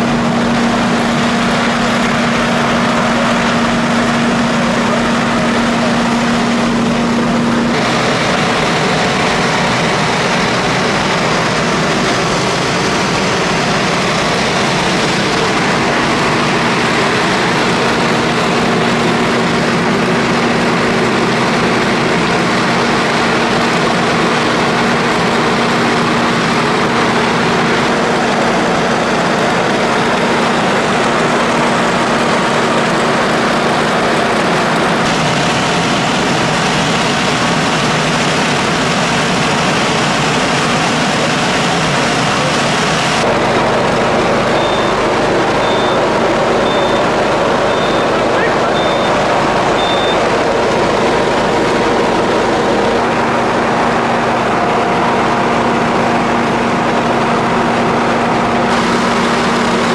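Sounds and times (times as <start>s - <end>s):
machinery engine drone: 0.0s - 59.9s.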